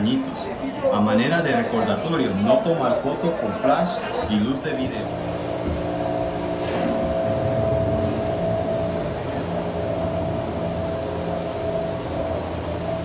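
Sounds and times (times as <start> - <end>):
droning hum with held tones: 0.0 - 13.0
low rumble: 5.1 - 13.0.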